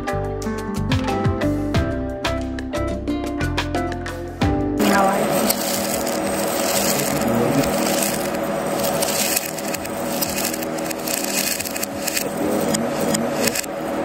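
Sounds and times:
beads pouring into plastic jar: 0:04.8 - 0:12.1.

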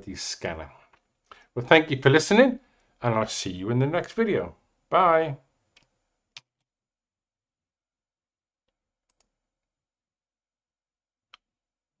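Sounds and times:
computer mouse and key clicks: 0:09.1 - 0:09.4.

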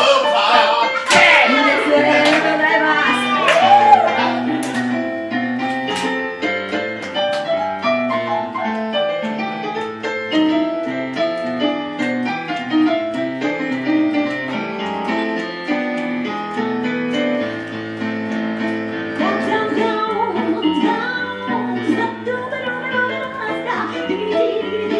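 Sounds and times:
piano playing chords: 0:00.0 - 0:24.9
woman singing: 0:01.4 - 0:03.8, 0:19.2 - 0:24.9.

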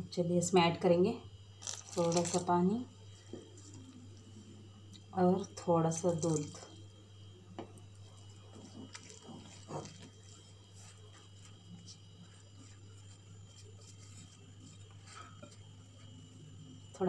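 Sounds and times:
steady low hum: 0:00.0 - 0:17.0
hand squishing wet dough: 0:08.1 - 0:15.2.

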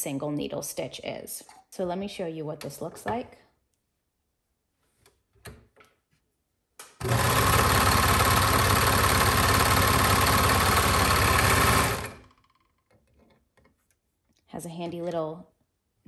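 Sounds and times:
serger sewing machine running: 0:07.0 - 0:12.3.

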